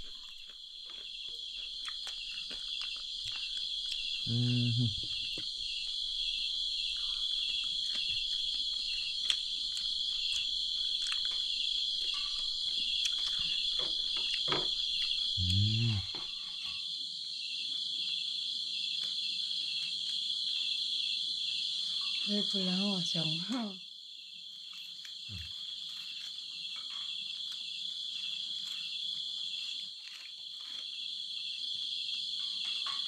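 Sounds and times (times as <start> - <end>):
night insects chirring: 0.0 - 33.0
brief vocal sound: 4.3 - 5.1
clicks from handling food: 9.2 - 11.6.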